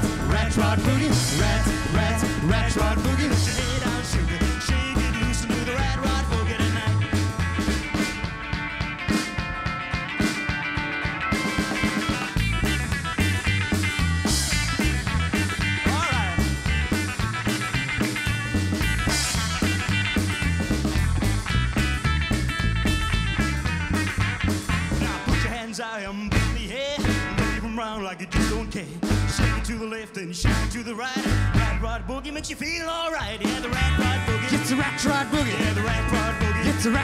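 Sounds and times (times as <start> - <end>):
bass line: 0.0 - 10.4, 11.2 - 37.0
drums snare and cymbals: 0.0 - 37.0.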